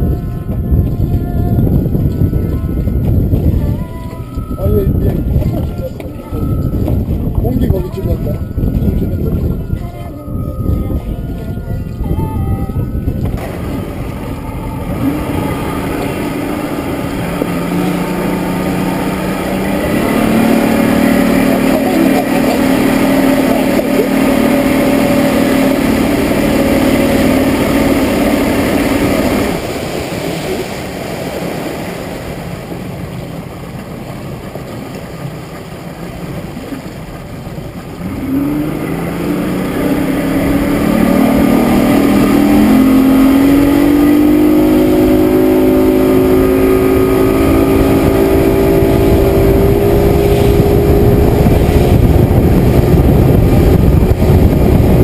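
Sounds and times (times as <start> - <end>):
outboard motor running: 0.0 - 55.0
water rushing: 0.0 - 55.0.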